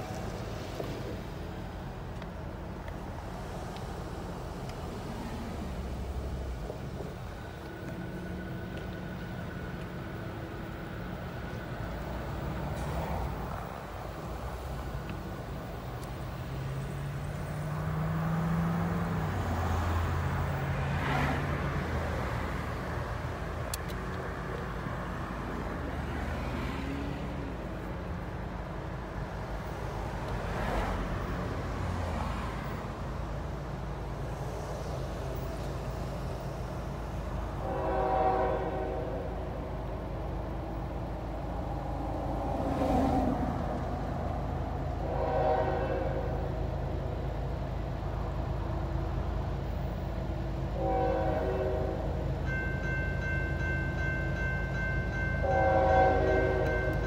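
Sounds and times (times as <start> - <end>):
train rumble: 0.0 - 57.0
locomotive horn blasts: 37.6 - 39.4, 45.0 - 46.5, 50.8 - 52.2, 55.4 - 57.0
crossing bell ringing: 52.1 - 57.0.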